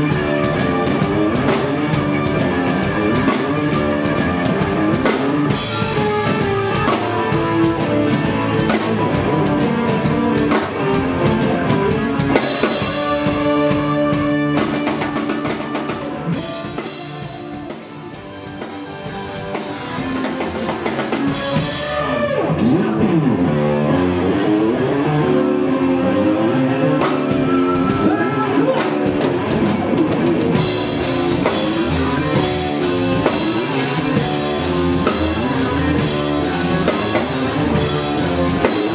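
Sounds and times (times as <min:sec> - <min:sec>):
drum kit: 0:00.0 - 0:38.9
electric guitars: 0:00.0 - 0:38.9.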